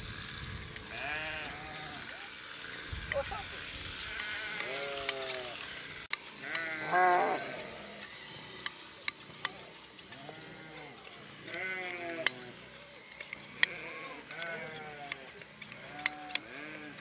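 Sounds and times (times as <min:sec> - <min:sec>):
hand shears snipping fleece: 0:00.0 - 0:17.0
sheep bleating: 0:00.9 - 0:02.3, 0:03.5 - 0:05.6, 0:06.4 - 0:08.0, 0:09.6 - 0:12.6, 0:13.5 - 0:17.0.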